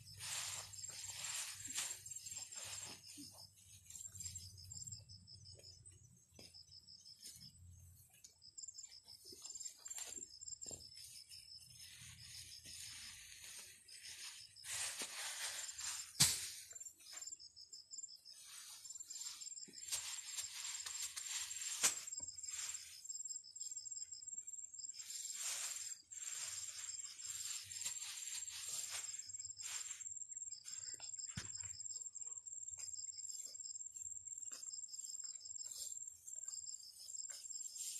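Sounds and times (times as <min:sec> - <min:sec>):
rustling of seedling leaves: 0:00.0 - 0:04.8, 0:09.1 - 0:17.1, 0:18.3 - 0:23.1, 0:25.0 - 0:31.0
insects trilling: 0:00.0 - 0:37.9.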